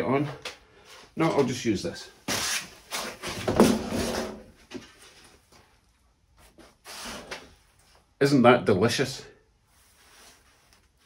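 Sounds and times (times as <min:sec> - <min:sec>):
foam blocks rustling and scraping: 0:02.3 - 0:05.4.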